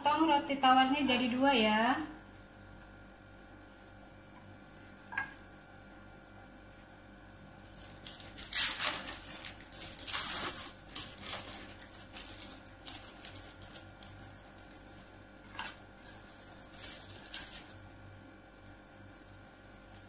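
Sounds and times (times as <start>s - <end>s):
plastic wrapper crinkling: 7.6s - 17.9s, 18.5s - 20.0s.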